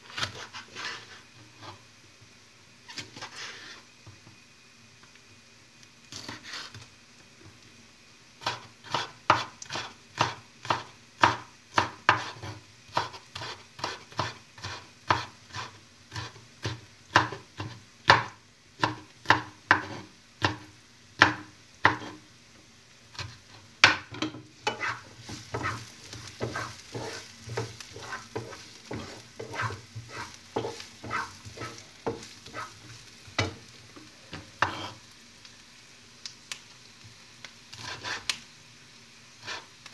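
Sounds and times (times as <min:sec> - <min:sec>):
knife chopping on cutting board: 0:08.4 - 0:20.6, 0:21.2 - 0:22.2, 0:23.2 - 0:32.7, 0:34.6 - 0:34.9.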